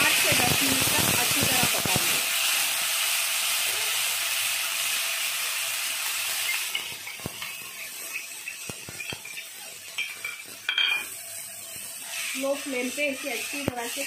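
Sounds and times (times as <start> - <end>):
paste sizzling in hot oil: 0.0 - 14.0
metal spoon scraping a pan: 6.4 - 14.0.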